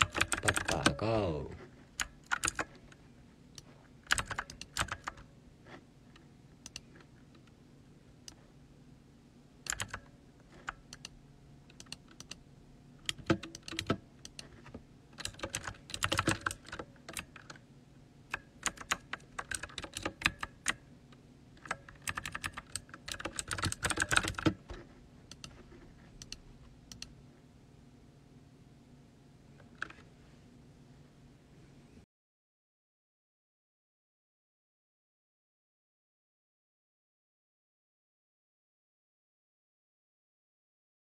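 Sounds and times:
typing on computer keyboard: 0:00.0 - 0:01.0, 0:02.0 - 0:02.8, 0:04.0 - 0:05.3, 0:09.6 - 0:12.4, 0:13.0 - 0:14.6, 0:15.2 - 0:17.6, 0:18.3 - 0:20.8, 0:21.6 - 0:24.6.

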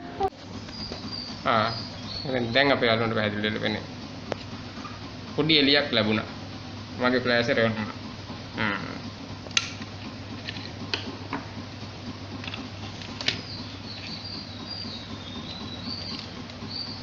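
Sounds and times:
plastic tape reels clicking: 0:12.3 - 0:17.0.

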